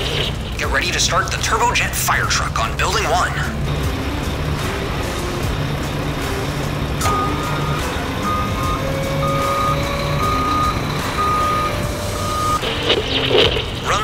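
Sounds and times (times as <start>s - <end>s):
low rumble: 0.0s - 14.0s
toy reversing beeper: 7.0s - 12.6s.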